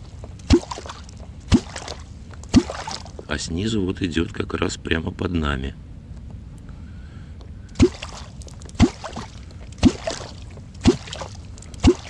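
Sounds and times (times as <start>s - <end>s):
deep gulping pop in water: 0.4s - 3.2s, 7.8s - 12.0s
water splash: 0.4s - 3.2s, 7.8s - 12.0s.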